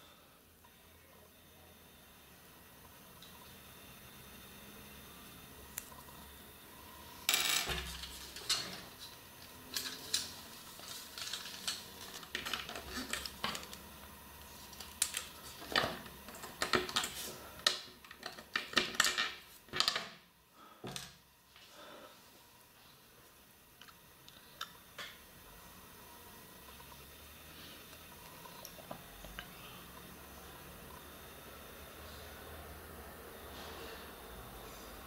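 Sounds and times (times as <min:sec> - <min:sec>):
plastic parts clicking and rattling: 0:07.3 - 0:13.8, 0:14.7 - 0:20.2.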